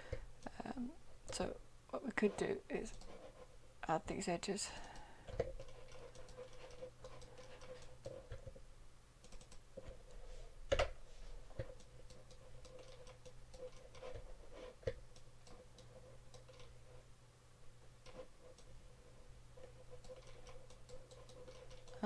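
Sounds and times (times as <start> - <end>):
faint steady hum: 0.0 - 22.0
computer mouse clicks: 2.8 - 3.2, 4.8 - 8.6, 9.2 - 9.6, 11.6 - 16.8, 18.0 - 18.7, 19.6 - 22.0.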